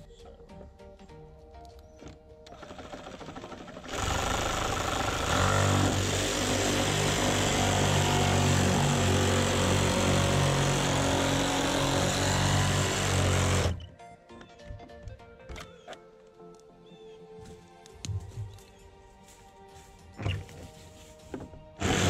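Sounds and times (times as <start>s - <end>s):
reciprocating saw cutting plastic pipe: 2.5s - 13.8s, 21.8s - 22.0s.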